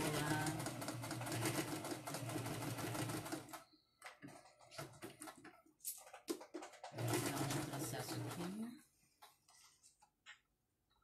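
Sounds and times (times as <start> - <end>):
sewing machine stitching: 0.0 - 8.7.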